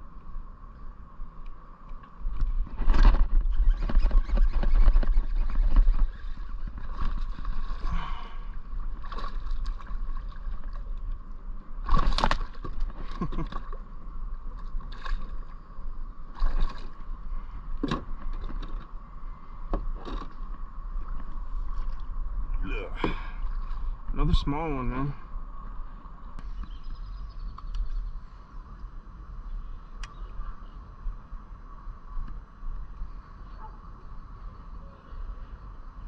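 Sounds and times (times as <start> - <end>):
knocks and rumbling in kayak: 2.0 - 25.0.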